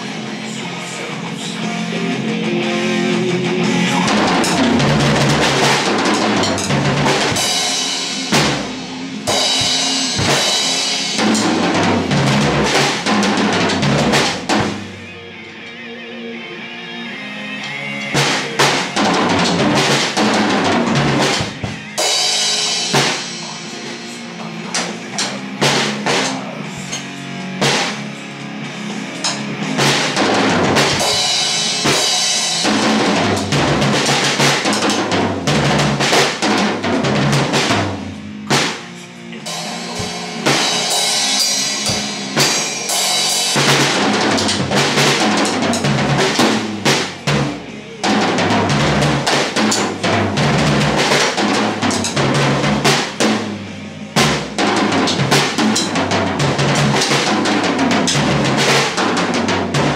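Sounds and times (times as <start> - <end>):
acoustic drum kit groove: 1.3 - 15.1, 17.6 - 59.9
ringing cymbals: 38.9 - 44.0.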